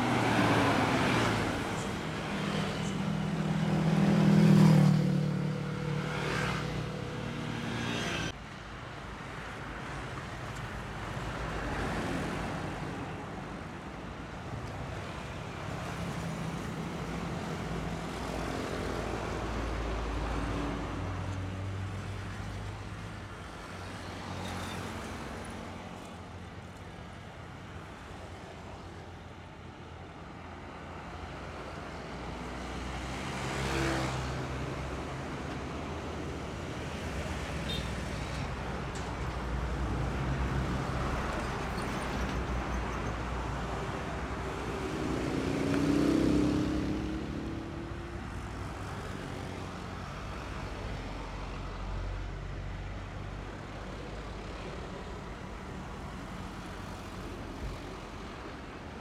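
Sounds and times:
motorcycles passing: 0.0 - 8.4, 44.2 - 49.6
trucks and buses passing: 0.0 - 59.0
tyres on the road: 0.0 - 59.0.

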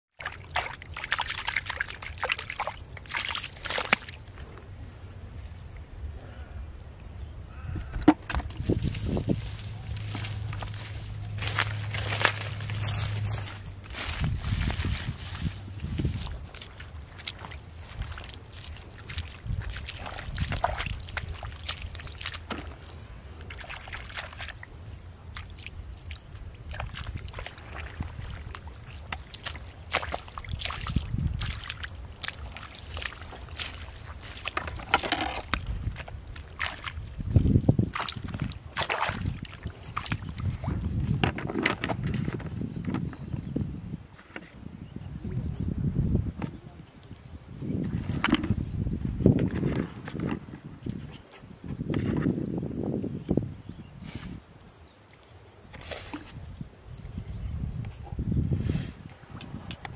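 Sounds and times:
shallow water sloshing: 0.2 - 6.2, 8.1 - 42.5
hands squelching in wet mud: 0.2 - 7.4, 8.0 - 41.2.

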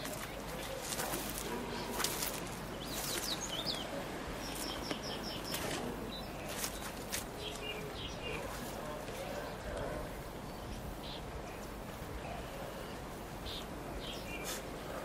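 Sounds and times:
bird chirping: 0.0 - 9.7, 12.3 - 14.6
steady outdoor hiss: 0.0 - 15.0.

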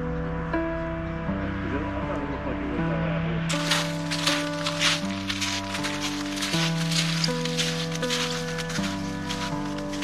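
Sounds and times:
held chords: 0.0 - 10.0
light rustling beat: 3.5 - 10.0.

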